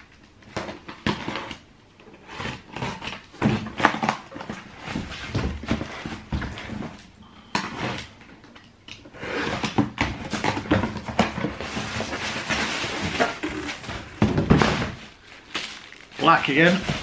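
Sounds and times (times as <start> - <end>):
plastic packaging crinkling: 10.9 - 17.0.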